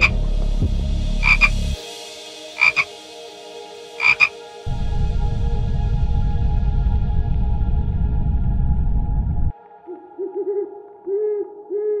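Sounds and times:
tree frog croaking: 1.2s - 1.6s, 2.6s - 2.9s, 4.0s - 4.3s.

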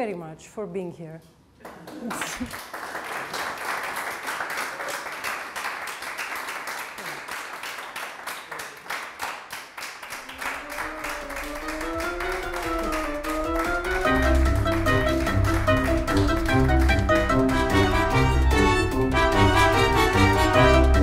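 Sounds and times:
audience applauding: 1.6s - 21.0s
music: 10.2s - 21.0s.

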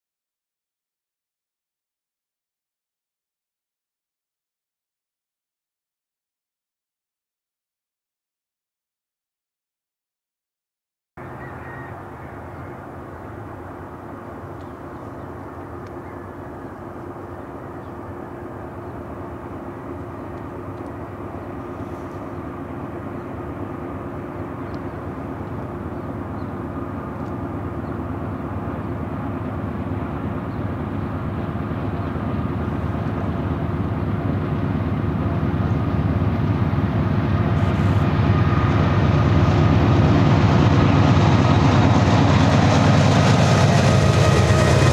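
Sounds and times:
diesel locomotive engine drone: 11.2s - 44.9s.

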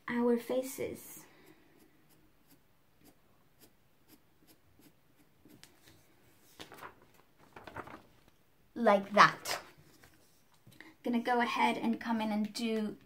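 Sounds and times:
pencil scratching on paper: 1.4s - 5.7s
paper rustle: 5.6s - 10.6s.

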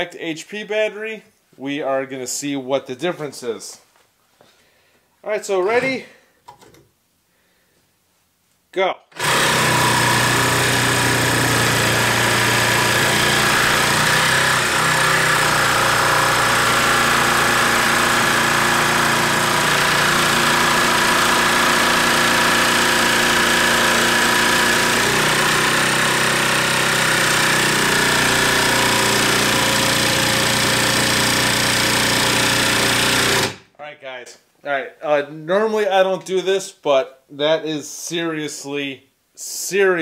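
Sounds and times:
jigsaw sawing through wood: 9.2s - 33.6s.

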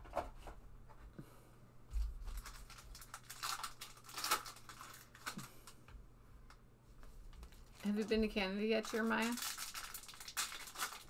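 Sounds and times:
plastic wrapper crinkling: 2.1s - 5.8s, 7.3s - 11.0s.

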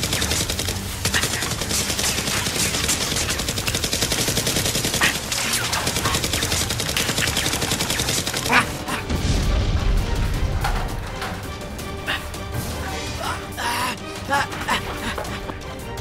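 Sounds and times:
automatic gunfire: 0.0s - 8.9s
explosion: 9.1s - 11.0s.

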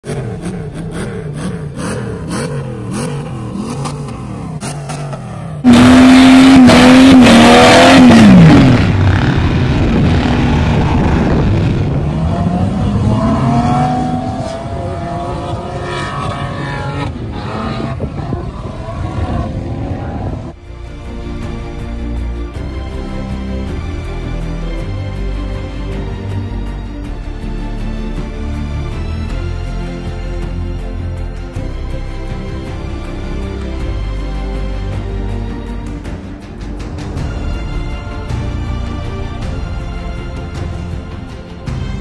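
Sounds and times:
off-road engines revving: 0.0s - 20.6s
vehicle accelerating: 0.0s - 20.6s.

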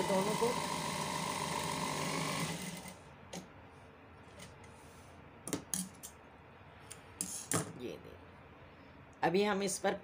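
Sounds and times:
electric sewing machine running: 0.0s - 3.0s.

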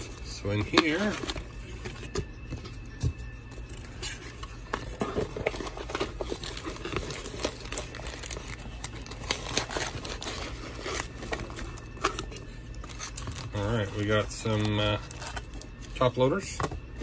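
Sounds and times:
hands rummaging in packing peanuts: 0.0s - 16.6s
wrapper crinkling: 3.6s - 16.2s.

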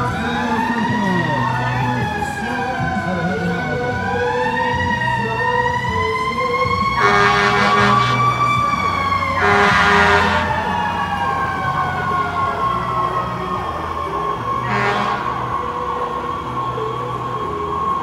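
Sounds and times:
fire truck siren wailing: 0.0s - 18.0s
loud horn blasts: 6.9s - 13.4s, 14.4s - 15.9s.

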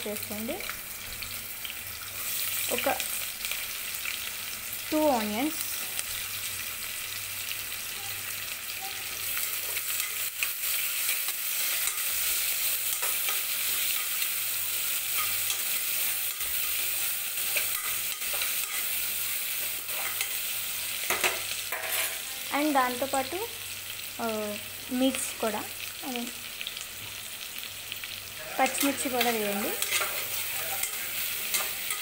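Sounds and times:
onions sizzling in hot oil: 0.0s - 32.0s
spatula scraping a pot: 29.8s - 32.0s.

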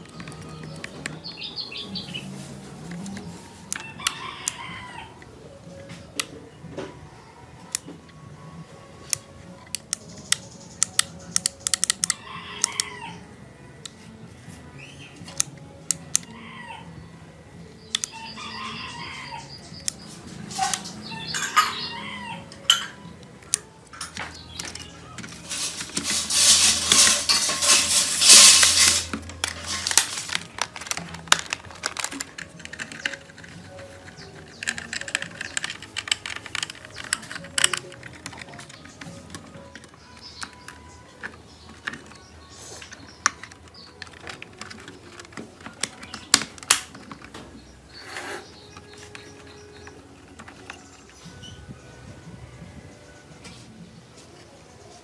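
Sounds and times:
chickens calling: 0.2s - 7.9s, 9.9s - 13.4s, 16.1s - 53.7s
rooster crowing: 3.8s - 5.2s, 12.1s - 13.3s, 18.1s - 19.5s, 21.0s - 22.6s
clicks and taps of plastic parts: 9.1s - 12.8s, 28.3s - 47.6s.

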